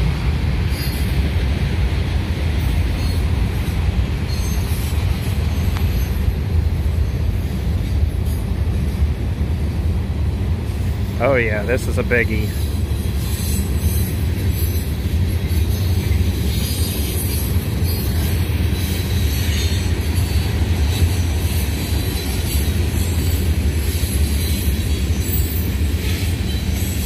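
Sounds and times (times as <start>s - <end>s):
train wheels rumbling on rail: 0.0s - 27.0s
faint wheel squeal: 4.2s - 6.2s.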